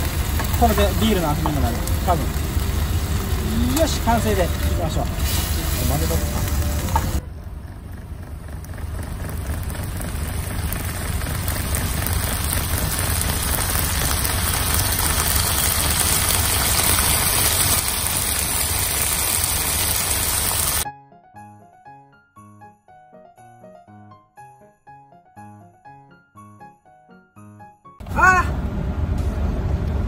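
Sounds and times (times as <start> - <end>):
food sizzling in a frying pan: 0.0 - 7.2, 10.0 - 20.8
low hum: 0.0 - 18.6.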